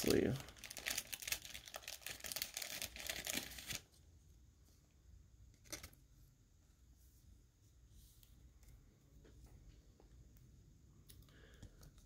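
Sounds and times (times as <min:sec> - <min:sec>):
plastic sleeve crinkling: 0:00.0 - 0:03.9.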